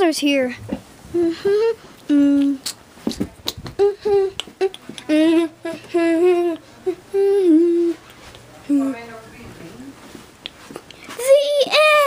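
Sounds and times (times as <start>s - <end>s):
person humming: 1.1s - 8.1s.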